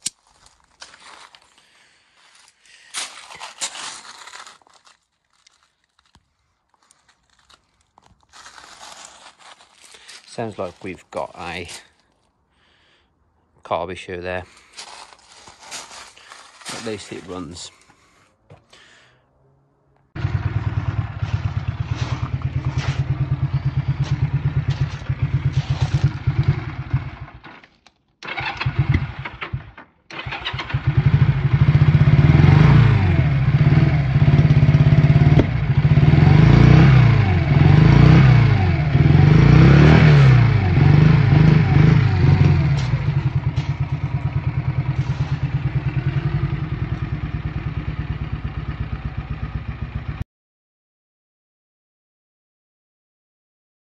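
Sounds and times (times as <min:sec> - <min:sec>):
motorcycle engine idling and revving: 0:14.7 - 0:50.2.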